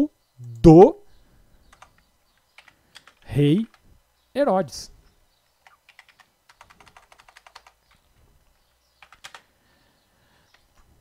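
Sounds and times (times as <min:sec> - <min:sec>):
faint keyboard typing: 0:01.6 - 0:03.9, 0:05.5 - 0:09.6, 0:10.4 - 0:11.0.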